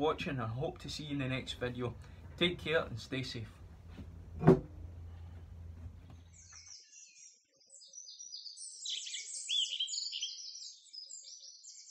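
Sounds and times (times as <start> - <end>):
faint low room hum: 0.0 - 6.4
songbirds chirping and trilling: 5.0 - 11.9.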